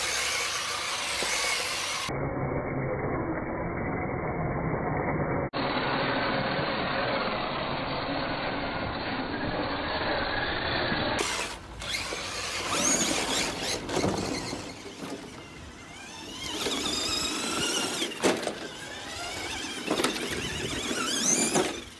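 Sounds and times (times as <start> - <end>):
electric motors whining: 0.0 - 3.5, 5.6 - 21.9
tyres scrabbling on dirt: 11.2 - 21.9.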